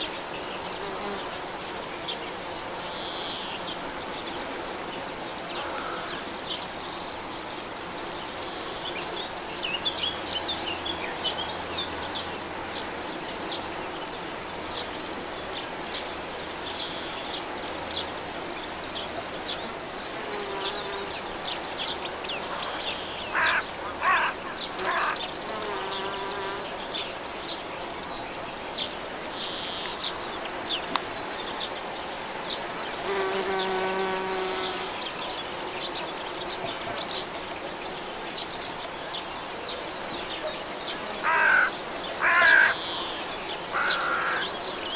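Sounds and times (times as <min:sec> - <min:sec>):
bee flying close by: 0:00.1 - 0:29.3, 0:32.4 - 0:38.0
bees buzzing: 0:00.1 - 0:38.6, 0:39.4 - 0:44.9.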